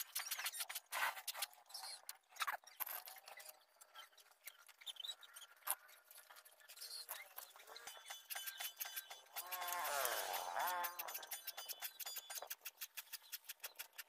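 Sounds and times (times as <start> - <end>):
file rasping on saw teeth: 6.9 - 14.0.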